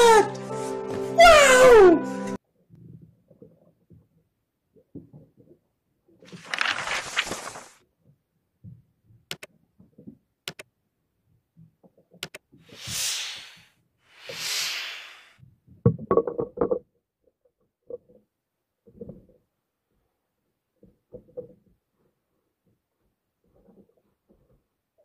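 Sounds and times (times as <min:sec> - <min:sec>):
sharp clicks: 0:10.5 - 0:10.7, 0:12.2 - 0:12.5
long hissing swells: 0:12.7 - 0:15.4.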